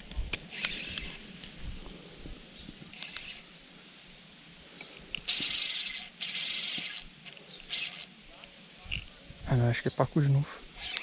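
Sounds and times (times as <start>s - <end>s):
fishing reel buzzing: 0.5s - 1.2s, 2.9s - 3.5s, 5.2s - 8.2s, 10.8s - 11.0s.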